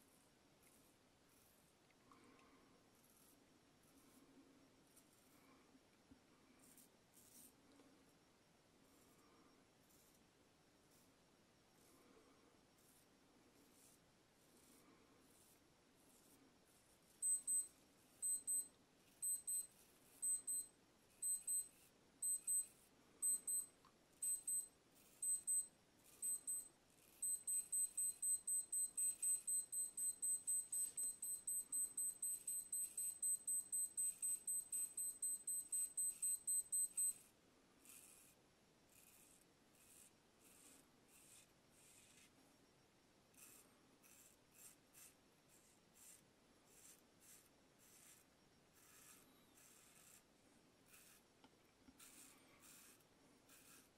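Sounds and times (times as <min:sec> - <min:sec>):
electronic alarm beeping: 0:17.2 - 0:37.2.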